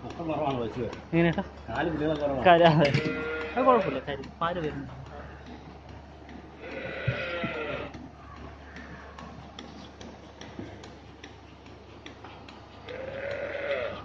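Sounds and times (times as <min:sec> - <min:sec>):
milking pulsator clicking: 0:00.0 - 0:14.0
cow calling: 0:02.7 - 0:04.1, 0:06.6 - 0:08.0, 0:12.8 - 0:14.0.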